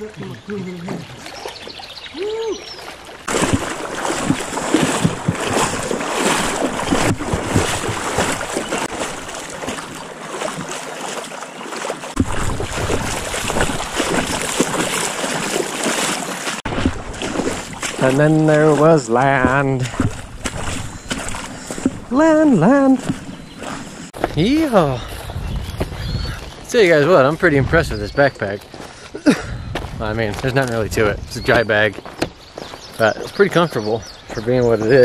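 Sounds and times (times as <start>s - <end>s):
splashing river water: 0.0s - 25.4s.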